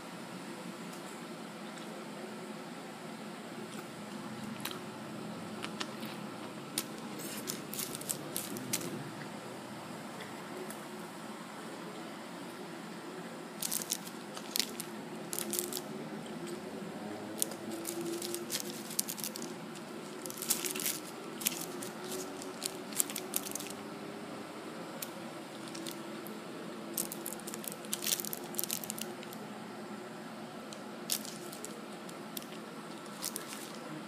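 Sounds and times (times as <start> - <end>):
steady low hum: 0.0 - 34.0
paper wrapper crinkling: 6.8 - 9.0, 13.6 - 15.9, 17.3 - 23.8, 25.0 - 26.3, 26.9 - 29.4, 30.7 - 33.8.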